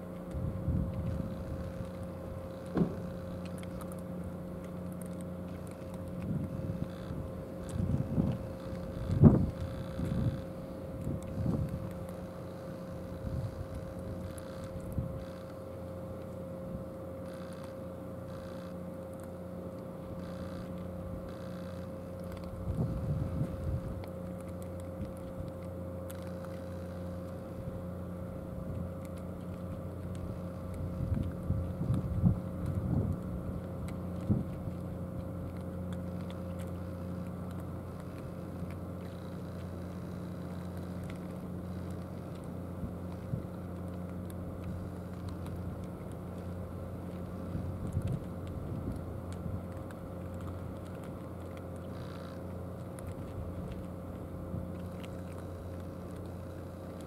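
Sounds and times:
engine idling hum: 0:00.0 - 0:57.0
cats crunching food: 0:00.1 - 0:57.0.

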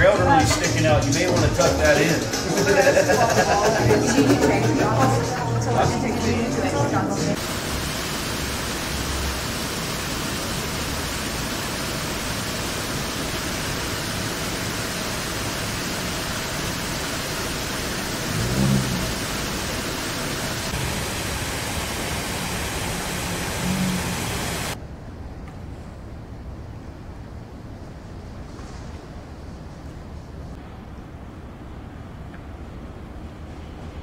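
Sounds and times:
steady rushing hiss: 0:07.1 - 0:24.8.

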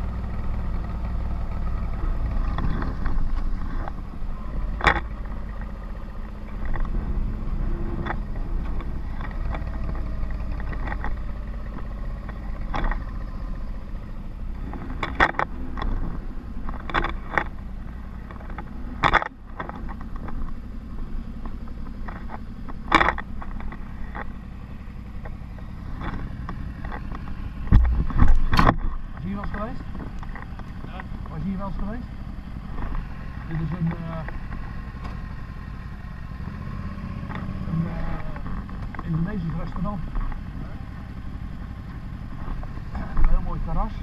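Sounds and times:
motorcycle engine running: 0:00.0 - 0:44.0.

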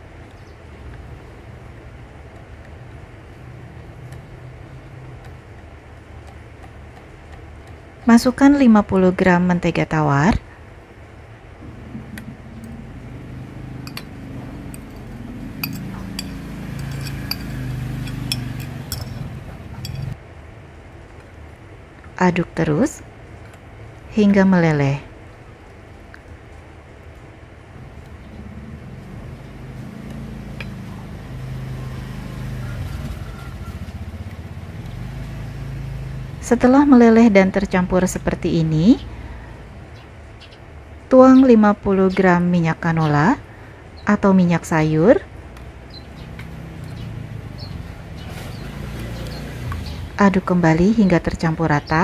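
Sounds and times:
low steady rumble: 0:00.0 - 0:29.8
metal utensil clinking on dishes: 0:15.6 - 0:20.2.

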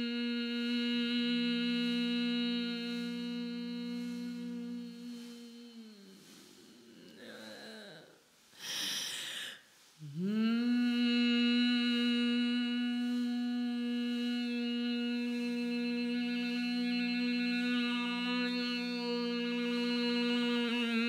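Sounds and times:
voice humming held note: 0:00.0 - 0:08.2, 0:10.0 - 0:21.0
breathy hiss: 0:00.0 - 0:21.0.

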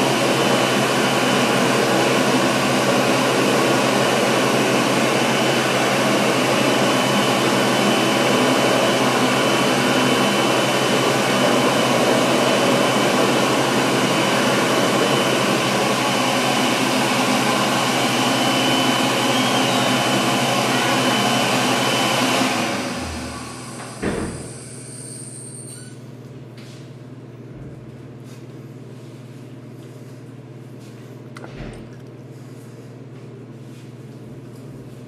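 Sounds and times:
thump: 0:24.0 - 0:24.4.

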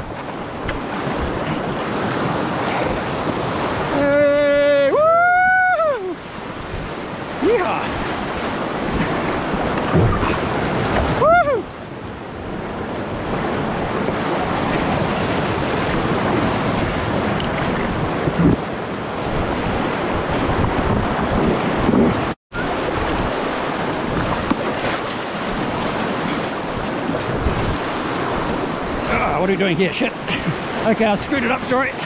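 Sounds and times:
wind buffeting microphone: 0:00.0 - 0:32.0
whitewater rapids rushing: 0:01.4 - 0:11.7, 0:22.6 - 0:32.0
person calling out: 0:03.9 - 0:06.2.

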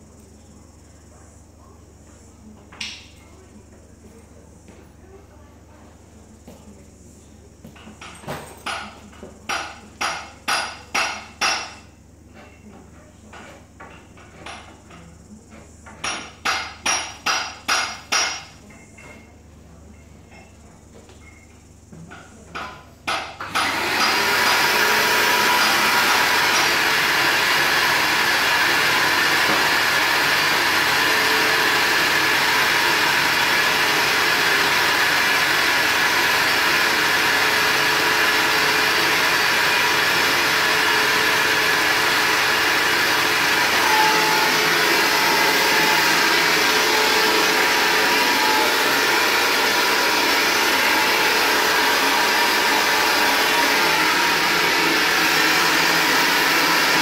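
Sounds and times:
vacuum cleaner running: 0:22.3 - 0:57.0.

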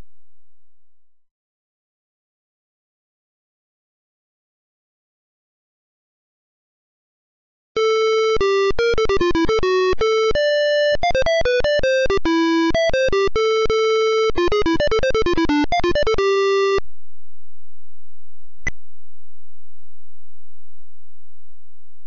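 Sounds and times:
electronic synthesizer melody: 0:07.8 - 0:16.8.

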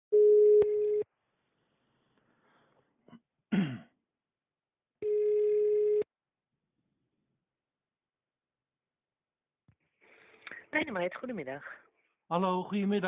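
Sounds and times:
telephone ringback tone: 0:00.1 - 0:01.0, 0:05.0 - 0:06.1.

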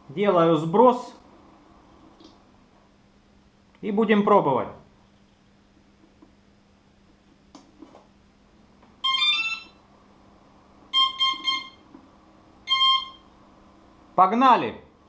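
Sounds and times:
motor controller startup beeps: 0:12.7 - 0:13.3.

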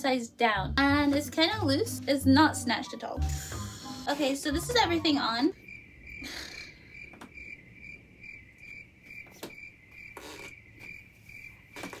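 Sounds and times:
cricket chirping: 0:03.4 - 0:12.0.

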